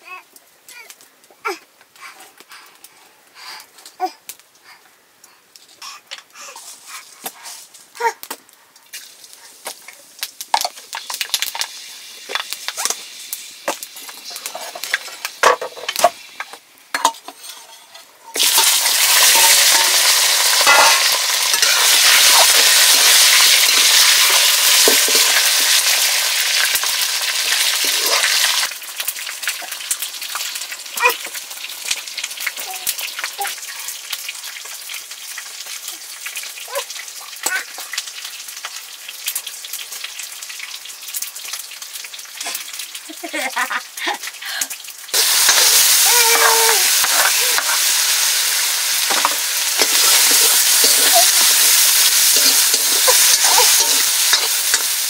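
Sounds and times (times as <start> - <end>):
faint fire crackling: 0.0 - 55.0
food sizzling in hot oil: 8.8 - 55.0
spatula scraping wok: 13.7 - 26.1, 45.2 - 55.0.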